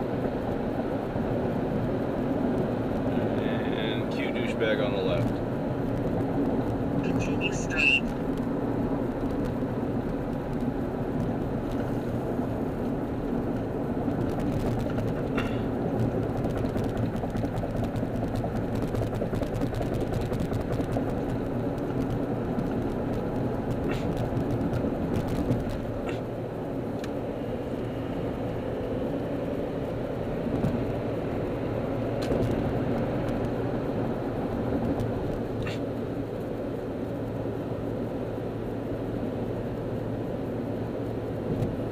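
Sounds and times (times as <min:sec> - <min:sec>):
car engine hum: 0:00.0 - 0:41.9
tyre and wind noise: 0:08.0 - 0:36.5.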